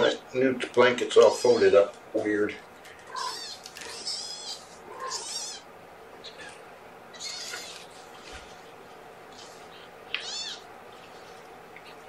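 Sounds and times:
kitten mewing: 3.0 - 5.6, 6.2 - 7.9, 9.3 - 10.7.

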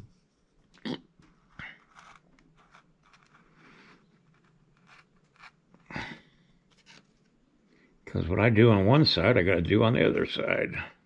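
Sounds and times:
metal tool scraping wax: 1.8 - 5.7.

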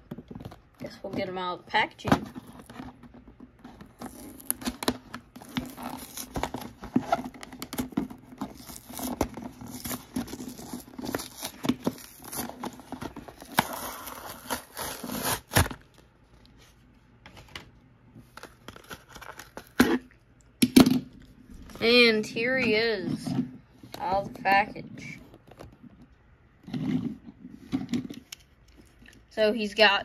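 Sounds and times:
plastic blister crinkling: 2.0 - 16.6
cardboard tearing: 3.7 - 15.8.

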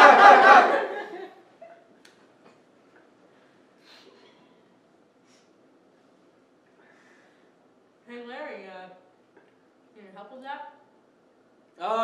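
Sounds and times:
group of people laughing: 0.0 - 1.5.

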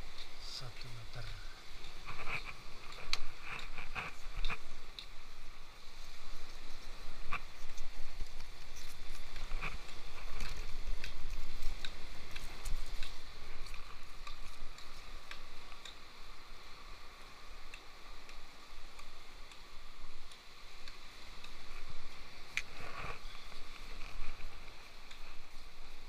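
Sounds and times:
sharp ticks and clicks: 0.0 - 5.2, 7.2 - 22.8.

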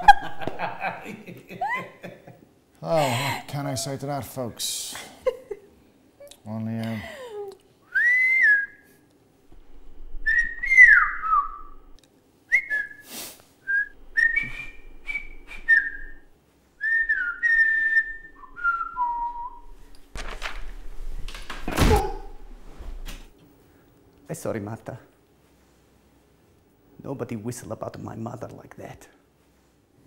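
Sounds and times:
man whistling: 7.9 - 8.9, 10.2 - 11.8, 12.5 - 19.7
noisy rustle: 19.7 - 23.3.

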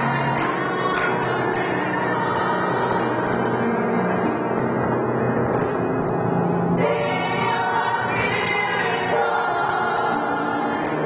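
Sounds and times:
gospel choir singing: 0.0 - 4.2, 6.6 - 11.0.

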